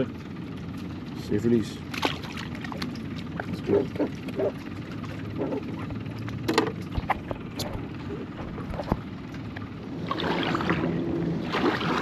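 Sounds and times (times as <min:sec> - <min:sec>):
low steady hum: 0:00.0 - 0:12.0
low steady rumble: 0:00.0 - 0:12.0.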